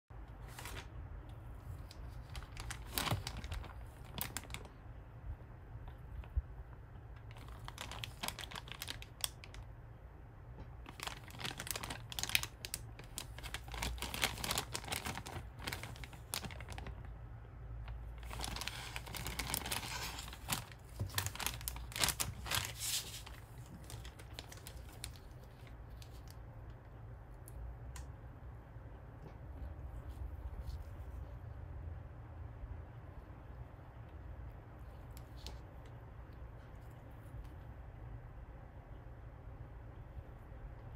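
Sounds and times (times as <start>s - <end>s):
plastic bag crinkling: 1.6s - 4.8s, 7.1s - 9.7s, 10.8s - 17.1s, 17.8s - 26.4s.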